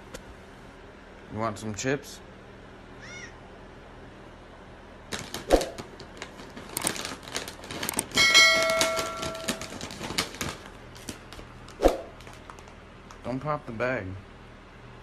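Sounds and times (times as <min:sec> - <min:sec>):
plastic bag crinkling: 0:05.1 - 0:12.8.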